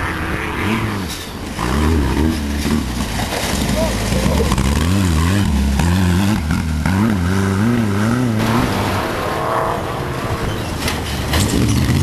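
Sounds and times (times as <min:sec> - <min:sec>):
buggy engine revving hard: 0:00.0 - 0:12.0
distant engine: 0:00.0 - 0:12.0.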